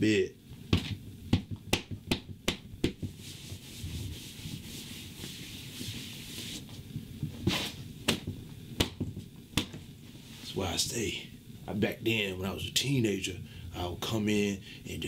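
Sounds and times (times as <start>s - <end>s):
sharp taps: 0.7s - 3.1s
hand rubbing across bedspread: 3.0s - 7.9s.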